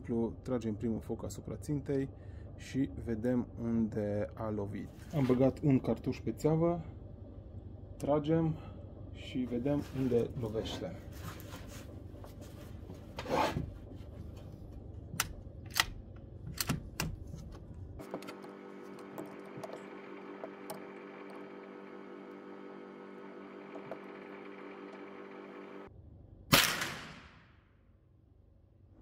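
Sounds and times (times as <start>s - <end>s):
multi-pitched steady hum: 0.0s - 26.6s
sharp rifle clicks: 26.5s - 27.3s.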